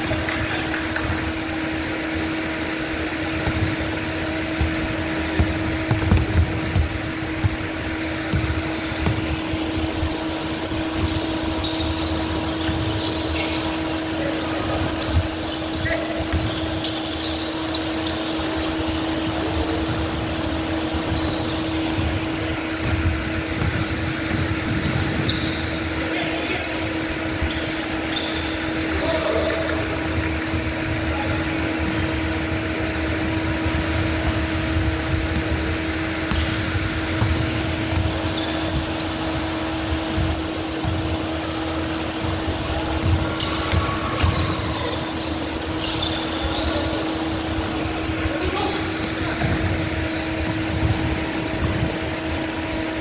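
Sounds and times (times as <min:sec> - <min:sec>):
steady mechanical hum: 0:00.0 - 0:53.0
basketball bouncing on hardwood: 0:04.6 - 0:09.5, 0:22.8 - 0:25.3, 0:36.2 - 0:39.4, 0:43.0 - 0:44.5
players calling out: 0:35.8 - 0:50.4.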